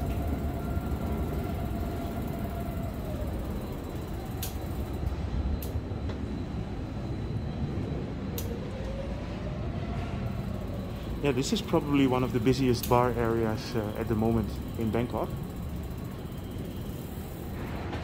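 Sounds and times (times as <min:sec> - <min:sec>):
city street traffic rumble: 0:00.0 - 0:18.0.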